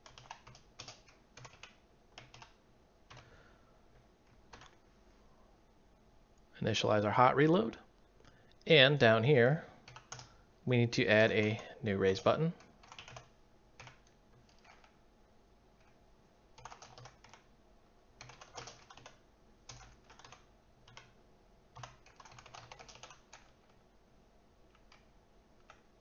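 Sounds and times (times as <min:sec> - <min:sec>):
faint computer keyboard typing: 0:00.0 - 0:04.8, 0:09.8 - 0:10.4, 0:11.2 - 0:15.0, 0:15.8 - 0:17.5, 0:18.2 - 0:23.8, 0:24.6 - 0:26.0.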